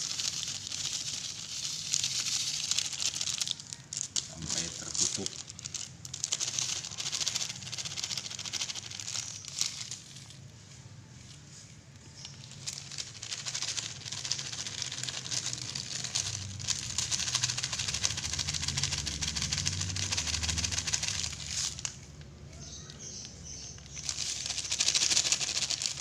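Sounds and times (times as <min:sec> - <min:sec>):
salt crunching in a plastic bowl: 0:00.0 - 0:10.4, 0:12.2 - 0:22.0.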